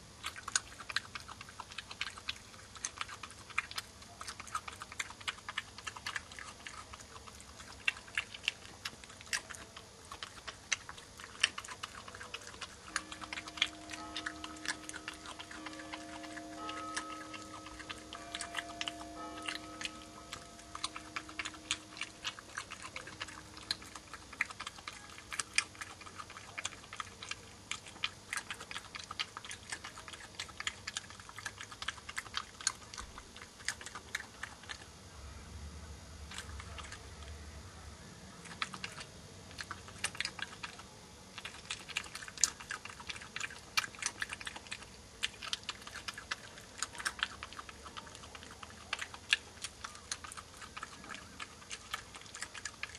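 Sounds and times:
animal crunching peanuts: 0.0 - 35.0, 36.2 - 37.4, 38.3 - 52.9.

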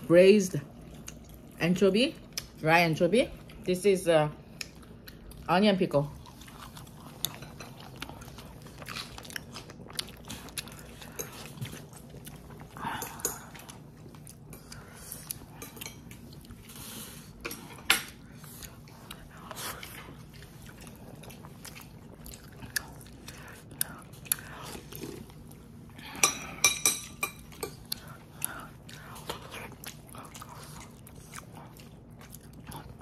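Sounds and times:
person chewing and biting: 6.2 - 12.8, 18.1 - 25.9, 27.4 - 33.0.

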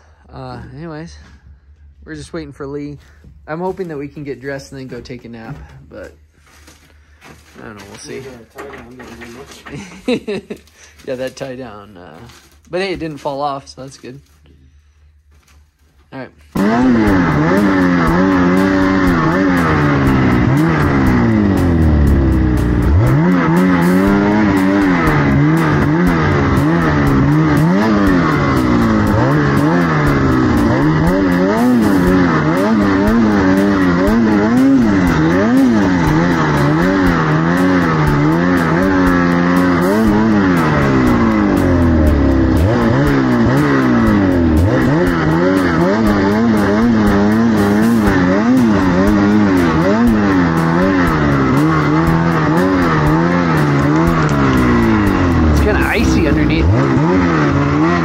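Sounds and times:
snowmobile engine revving: 16.5 - 58.0.

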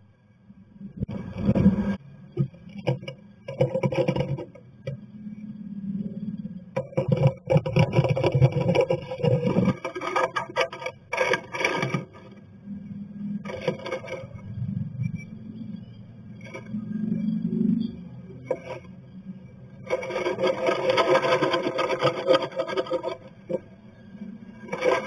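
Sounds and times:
bird scraping nesting material: 2.7 - 4.6, 6.8 - 12.4, 13.4 - 14.5, 18.4 - 19.0, 19.8 - 23.7, 24.6 - 25.0.

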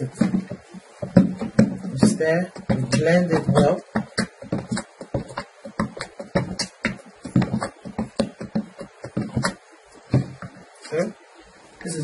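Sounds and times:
spatula knocking plastic bucket: 0.0 - 10.7.

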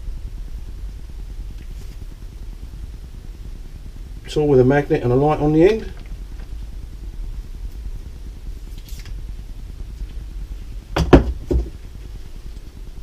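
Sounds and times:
steady low hum: 0.0 - 13.0
hand tools knocking on workbench: 11.0 - 11.7.

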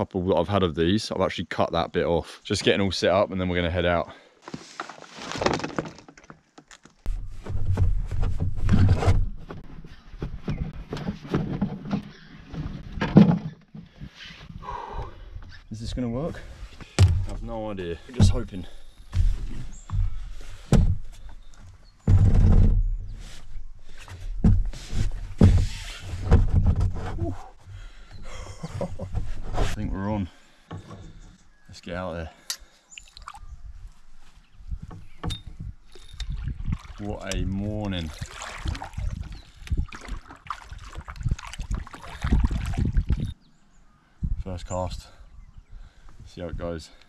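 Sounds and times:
kayak paddle strokes in water: 36.3 - 43.2.

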